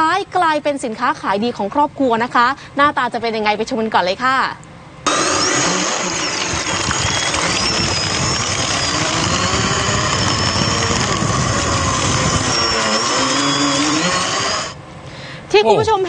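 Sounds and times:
boat motor whine: 5.1s - 14.8s.

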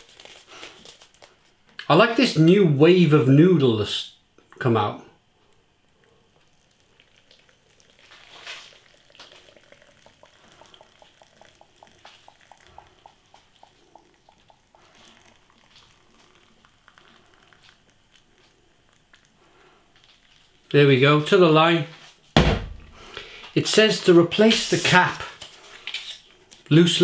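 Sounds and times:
water trickling into a pot: 5.6s - 21.0s.

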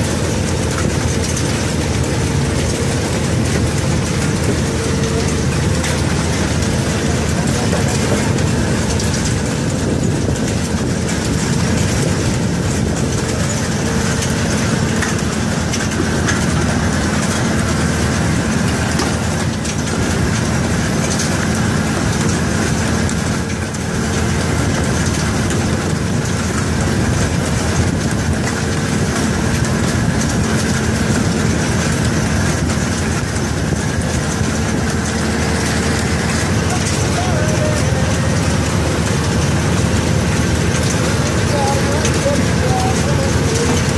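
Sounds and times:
conveyor machinery running: 0.0s - 43.9s.

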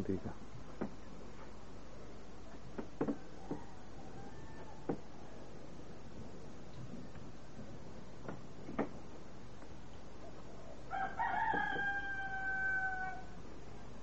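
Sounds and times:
rooster crowing: 3.1s - 5.5s, 10.9s - 13.4s.

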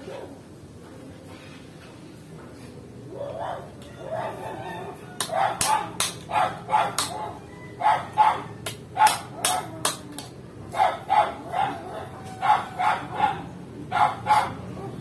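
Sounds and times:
dog barking: 3.1s - 9.8s, 10.7s - 15.0s.

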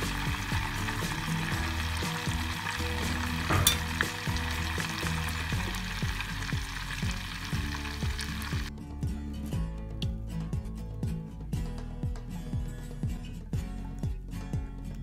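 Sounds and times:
butter bubbling and sizzling: 0.0s - 8.7s.

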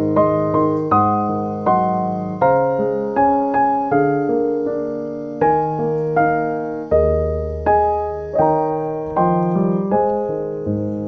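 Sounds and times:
gentle solo piano: 0.0s - 11.0s.

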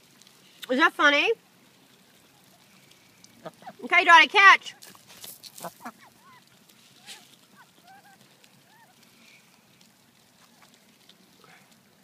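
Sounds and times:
faint duck calls: 2.2s - 3.8s, 5.6s - 9.5s.

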